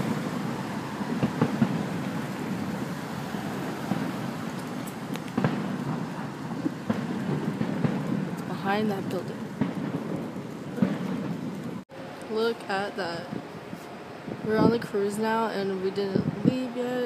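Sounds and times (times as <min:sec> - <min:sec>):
distant firework booms: 0:00.0 - 0:11.8
steady rushing background noise: 0:00.0 - 0:17.0.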